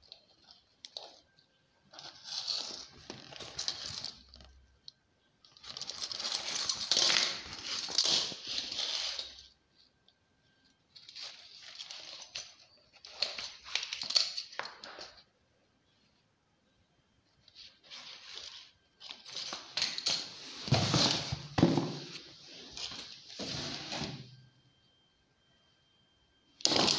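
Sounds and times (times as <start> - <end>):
metal buckles clinking: 5.4 - 9.4, 11.0 - 15.2, 26.6 - 26.9.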